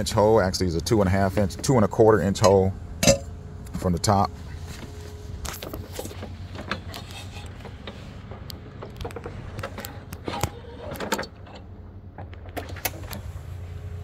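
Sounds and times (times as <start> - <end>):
steady low hum: 0.0 - 14.0
sharp knocks and clicks: 6.1 - 10.2.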